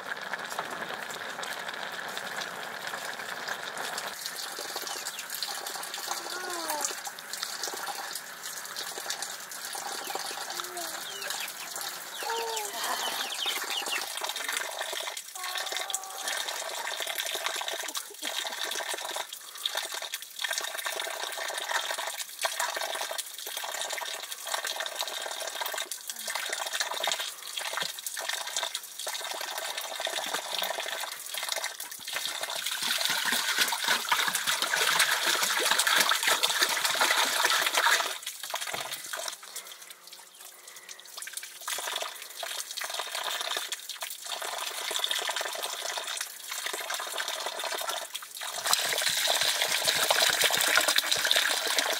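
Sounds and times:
water running and splashing: 0.0s - 51.9s.

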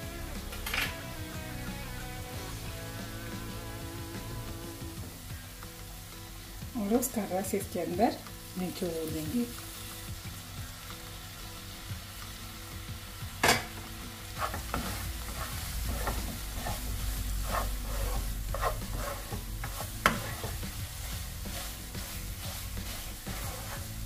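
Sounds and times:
wooden spatula scraping a pan: 14.3s - 24.0s.

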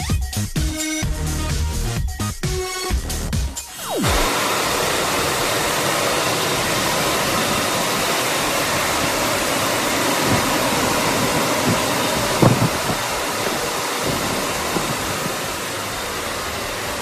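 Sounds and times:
car wash drying blowers rushing air: 3.7s - 17.0s.

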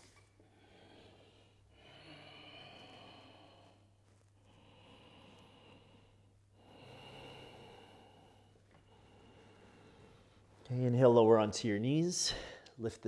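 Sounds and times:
steady low hum: 0.0s - 12.8s
person breathing slowly: 0.2s - 10.7s.

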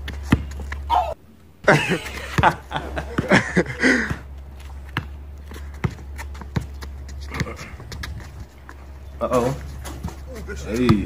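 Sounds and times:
basketball bouncing on concrete: 0.0s - 1.0s, 2.2s - 11.0s
person laughing: 0.9s - 4.2s.

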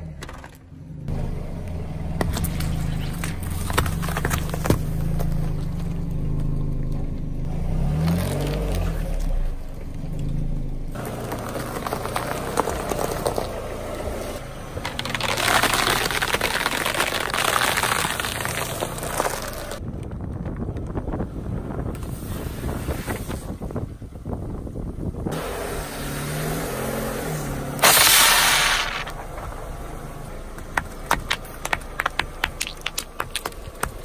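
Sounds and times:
car engine running: 0.0s - 7.6s, 9.4s - 19.8s, 27.8s - 34.0s
tyre crushing candies and spaghetti: 14.8s - 19.8s, 27.8s - 29.1s, 30.8s - 34.0s.

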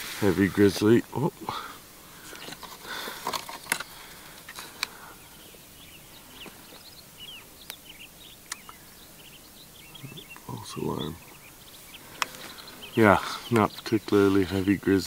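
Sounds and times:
small birds chirping: 0.0s - 15.0s
sharp clicks: 8.4s - 8.8s.

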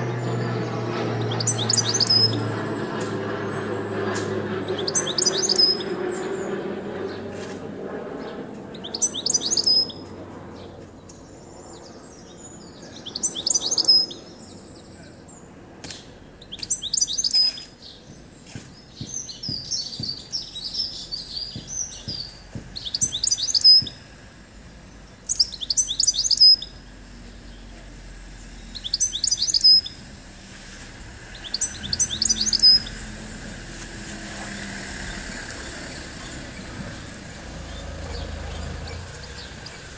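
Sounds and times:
goldfinch singing: 1.2s - 2.5s, 4.7s - 6.0s, 8.7s - 10.1s, 12.5s - 14.9s, 16.3s - 24.1s, 25.2s - 27.7s, 28.5s - 30.1s, 31.2s - 33.2s, 34.5s - 39.9s.

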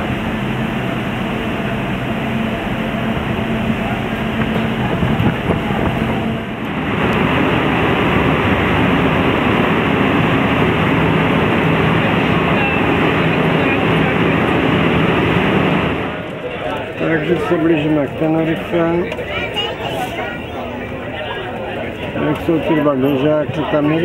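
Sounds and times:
churning water: 0.0s - 24.0s
ferry engines droning: 0.0s - 24.0s.

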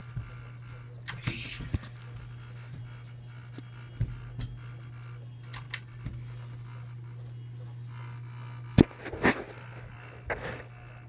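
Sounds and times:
ceiling fan motor humming: 0.0s - 11.0s.

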